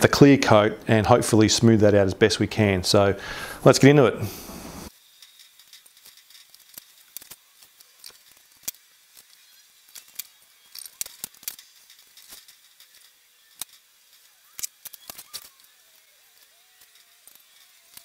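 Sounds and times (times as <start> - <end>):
masking tape clicking and crackling: 4.6 - 18.0.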